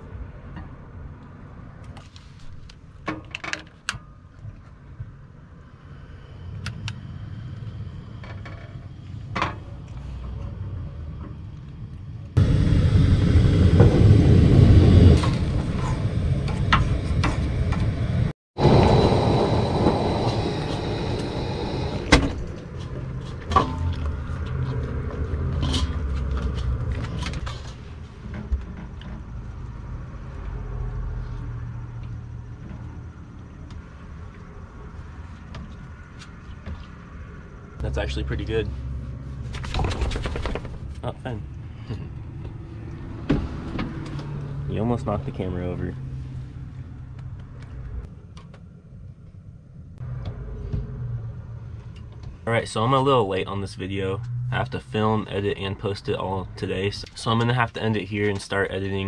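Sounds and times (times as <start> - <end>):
camp stove burner hissing: 12.4 - 22.4.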